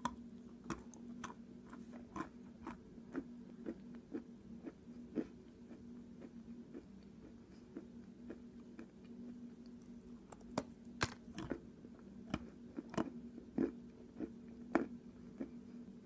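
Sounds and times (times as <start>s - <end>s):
gritty chewing crunches: 0.0s - 7.0s, 12.3s - 15.6s.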